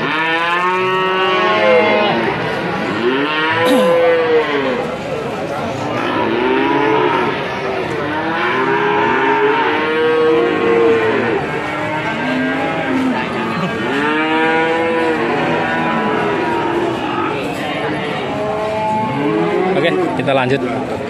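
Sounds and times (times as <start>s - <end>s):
cattle mooing: 3.0s - 4.8s, 5.9s - 7.5s, 8.1s - 20.2s.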